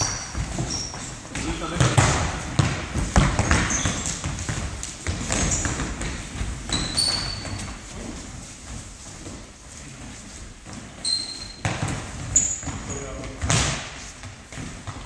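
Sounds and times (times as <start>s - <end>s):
shoe squeak: 0.0s - 1.2s, 3.2s - 4.3s, 5.3s - 6.0s, 6.6s - 7.8s, 11.0s - 13.2s
ball kicks and thuds on wooden floor: 1.3s - 7.6s, 11.6s - 15.0s.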